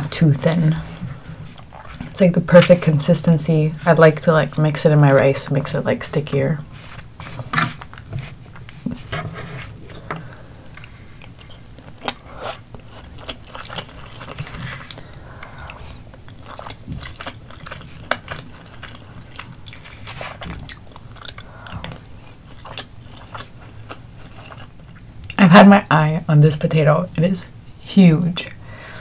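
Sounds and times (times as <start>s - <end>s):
person chewing food: 0.8s - 2.2s, 6.8s - 25.4s.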